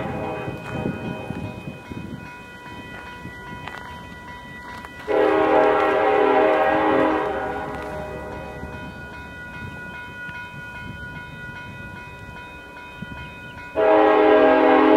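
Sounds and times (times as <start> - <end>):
locomotive air horn blast: 0.0 - 0.6, 5.1 - 8.3, 13.8 - 14.9.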